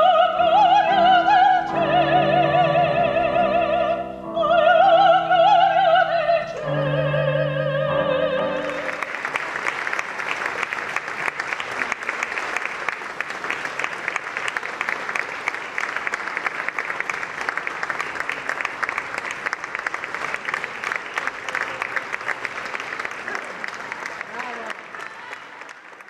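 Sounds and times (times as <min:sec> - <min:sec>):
audience applauding: 0:08.4 - 0:26.0.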